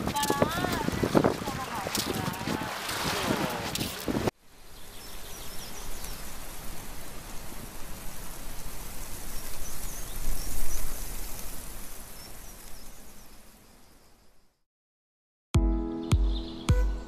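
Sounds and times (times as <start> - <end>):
outdoor ambience hiss: 3.5 - 14.6.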